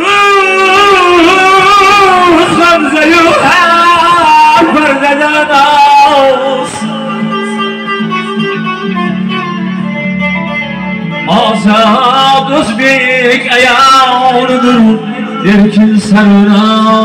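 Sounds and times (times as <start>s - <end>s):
man singing: 0.0s - 9.1s, 11.0s - 17.0s
keyboard: 0.0s - 17.0s
plucked string: 6.6s - 15.8s.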